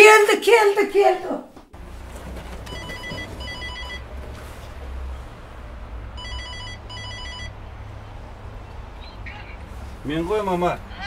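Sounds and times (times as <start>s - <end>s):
door intercom trilling rings: 2.6s - 4.0s, 6.2s - 7.6s.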